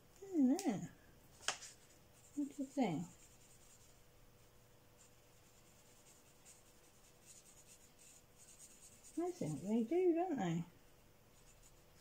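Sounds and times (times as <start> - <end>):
marker scratching on paper: 2.2 - 4.0, 5.0 - 10.0.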